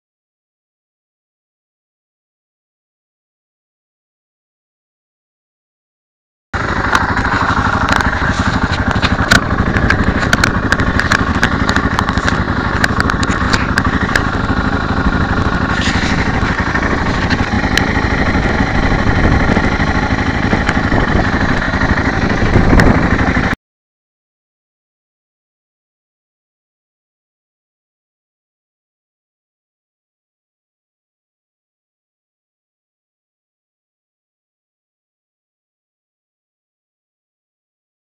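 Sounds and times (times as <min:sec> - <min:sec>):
sharp clicks: 0:06.6 - 0:18.7
motorcycle engine running: 0:06.6 - 0:23.6
wind rush on microphone: 0:07.4 - 0:23.6.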